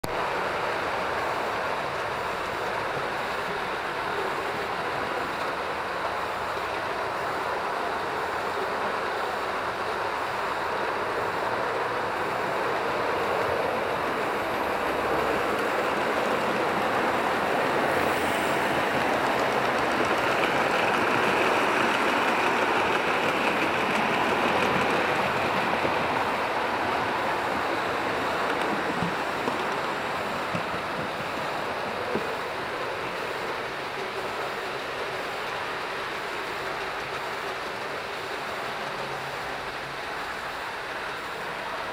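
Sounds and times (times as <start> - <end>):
model train wheels rumbling: 0.1 - 41.9.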